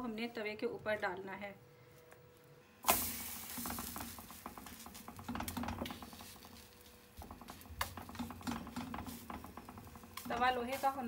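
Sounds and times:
dough hissing and crackling on griddle: 2.8 - 11.0.

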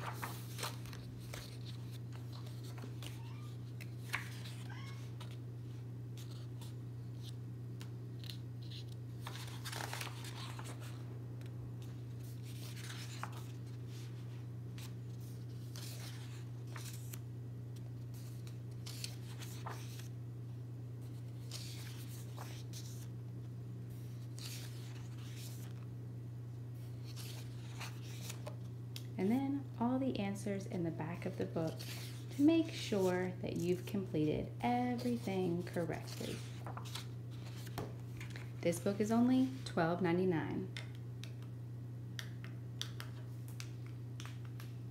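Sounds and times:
book pages turning: 0.0 - 5.4, 6.1 - 20.1, 21.0 - 23.1, 24.0 - 25.9, 26.8 - 29.1, 31.2 - 34.1, 34.8 - 38.6.

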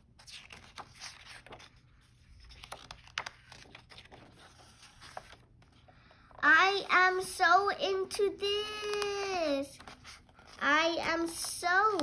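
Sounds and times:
book pages turning: 0.0 - 7.1, 8.5 - 12.0
soft paper ticks: 8.6 - 12.0.

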